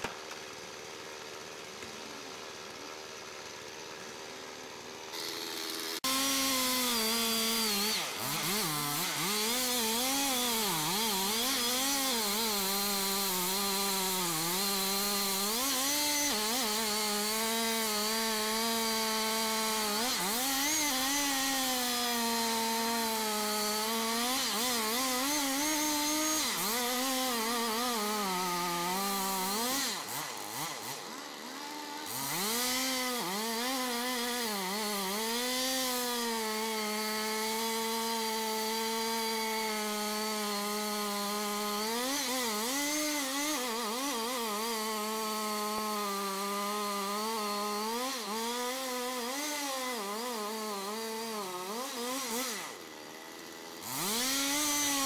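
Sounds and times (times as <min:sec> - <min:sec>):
chainsaw cutting wood: 0:00.0 - 0:55.0.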